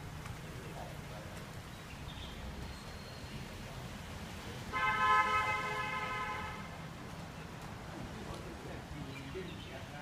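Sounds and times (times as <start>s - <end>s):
low street rumble: 0.0s - 10.0s
vehicle horn: 4.7s - 6.7s.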